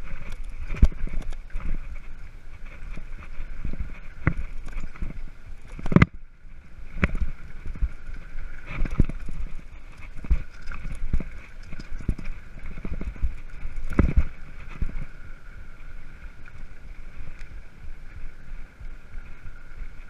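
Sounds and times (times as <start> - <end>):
bike knocks and rattles: 8.7 - 15.0.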